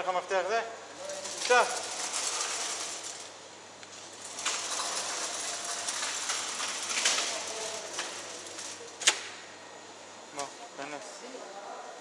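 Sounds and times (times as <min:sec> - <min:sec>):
metal security grille rattling: 0:00.9 - 0:03.4, 0:04.0 - 0:09.2.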